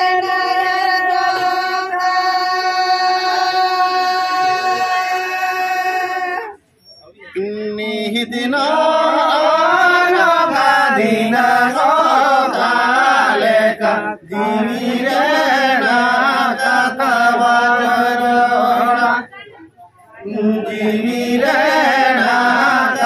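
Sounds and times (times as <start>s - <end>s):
men chanting together: 7.9s - 19.3s, 20.2s - 23.0s.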